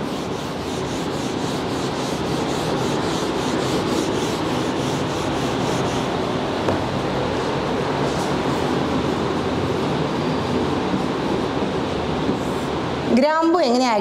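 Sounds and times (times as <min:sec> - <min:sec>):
marker rubbing on whiteboard: 0:00.0 - 0:06.2
steady rushing background noise: 0:00.0 - 0:13.4.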